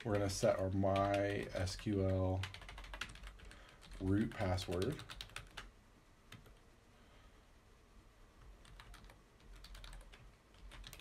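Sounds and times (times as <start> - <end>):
faint keyboard typing: 0.0 - 5.7, 6.3 - 6.7, 8.4 - 11.0.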